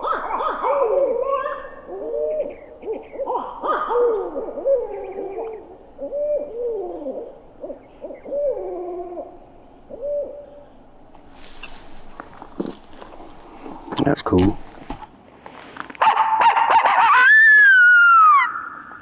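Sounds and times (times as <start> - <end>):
owls hooting: 0.0 - 11.0.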